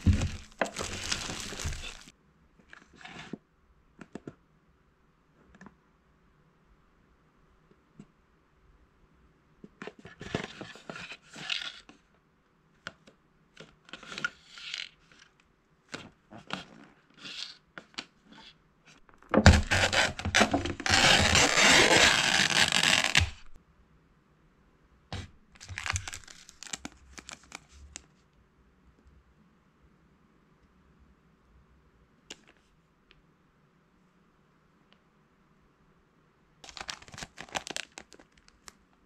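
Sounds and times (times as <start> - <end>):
packaging crinkling: 0.0 - 2.1, 19.2 - 23.6, 25.6 - 28.0, 36.6 - 38.8
paper lid tearing: 0.0 - 2.1, 19.4 - 23.6
plastic sachets crinkling: 0.0 - 2.1, 25.6 - 28.0, 36.6 - 38.8.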